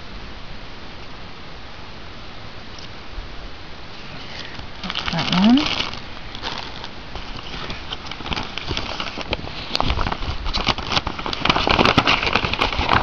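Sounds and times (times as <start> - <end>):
plastic and paper packaging crinkling: 4.0 - 13.0.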